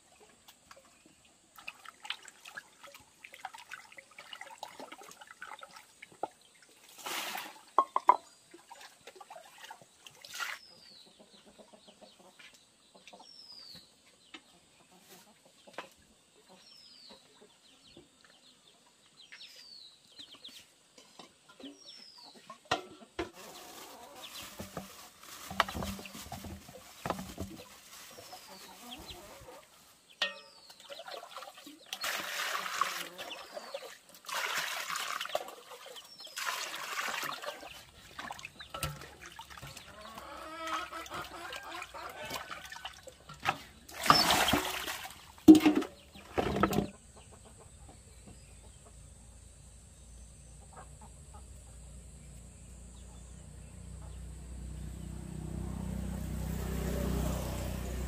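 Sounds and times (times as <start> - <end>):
chickens clucking: 11.0 - 13.3, 14.3 - 18.2, 20.3 - 31.9, 35.3 - 49.2, 50.4 - 51.8, 53.9 - 54.3
knocks and rustling: 24.4 - 27.9, 45.4 - 47.0.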